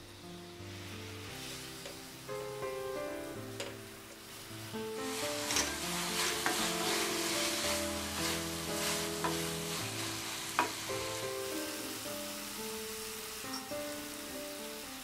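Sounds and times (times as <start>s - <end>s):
filling sizzling in pan: 0.0s - 15.0s
soft background music: 0.0s - 15.0s
spatula stirring and scraping pan: 3.6s - 11.0s.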